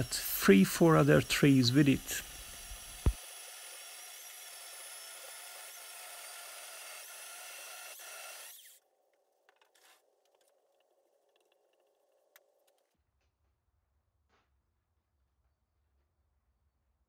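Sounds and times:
electric chainsaw cutting log: 0.0s - 8.8s.

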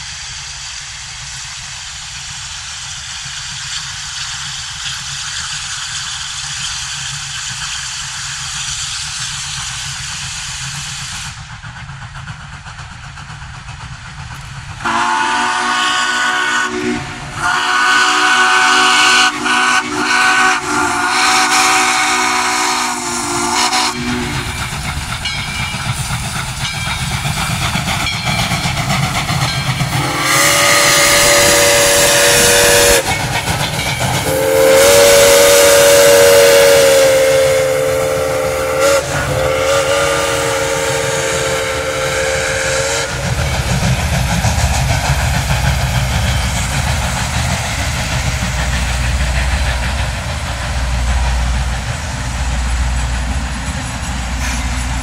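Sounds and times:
heavy train rumble: 0.0s - 55.0s
passenger cars rolling on rails: 0.0s - 55.0s
steam locomotive whistle: 14.8s - 25.4s, 29.9s - 33.4s, 34.2s - 43.6s.

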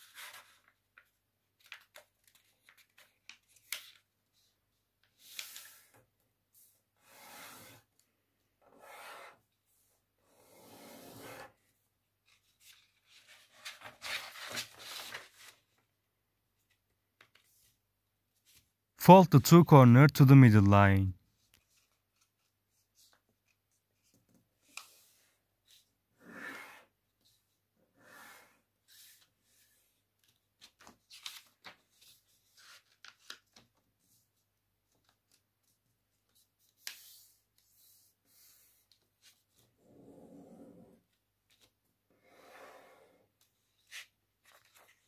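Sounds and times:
paper rustling and crackling: 12.3s - 15.8s, 30.2s - 33.8s.

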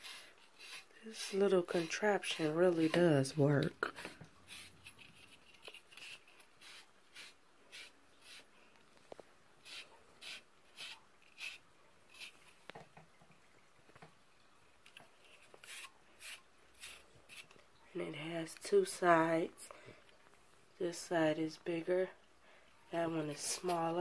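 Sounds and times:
blade brushing dog's coat: 0.0s - 3.3s, 23.2s - 24.0s.

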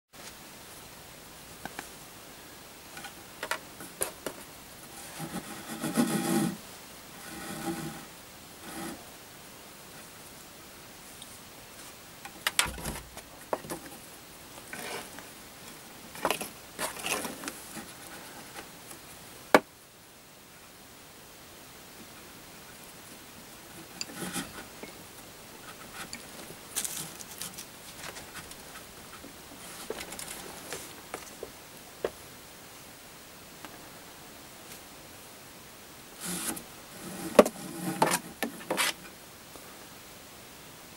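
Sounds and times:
rope sliding against wooden rail: 3.0s - 9.1s, 12.6s - 18.7s, 23.7s - 25.0s, 25.6s - 31.5s, 36.2s - 39.1s
rope rubbing over wooden rail: 3.8s - 9.1s, 14.7s - 15.2s, 23.7s - 24.8s, 36.2s - 39.1s.

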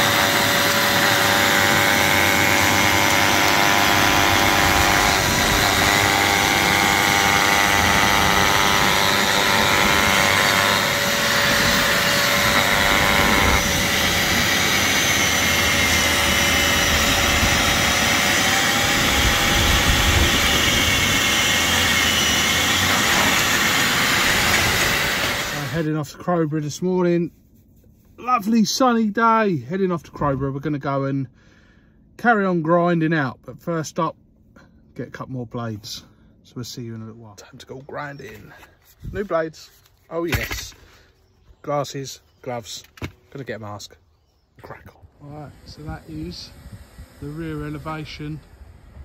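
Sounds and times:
angle grinder grinding mortar: 0.0s - 26.0s, 45.2s - 49.0s.

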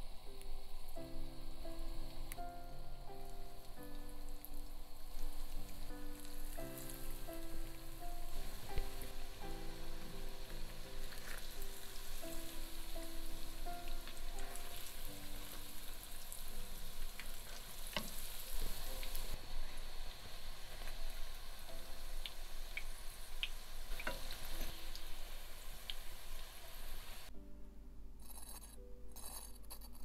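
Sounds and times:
hot oil sizzling and crackling: 0.0s - 27.3s.

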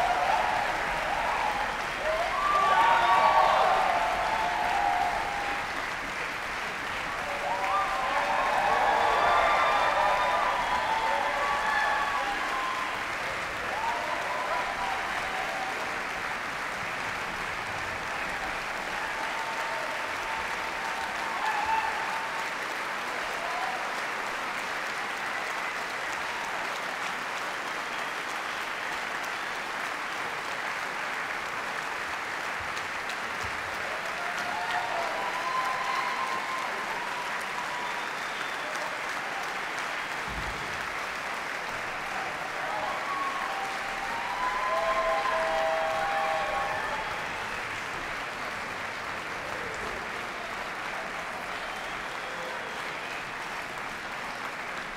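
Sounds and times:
audience applauding: 0.0s - 54.9s.

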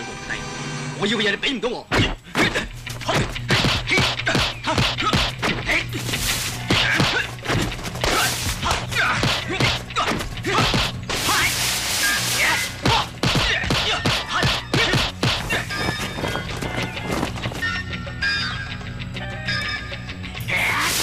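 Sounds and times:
film music: 0.0s - 1.7s, 2.5s - 21.0s
punch and block impacts: 1.9s - 5.7s, 6.6s - 11.5s, 12.4s - 15.7s
swishes of sleeves and arms: 11.1s - 12.8s.

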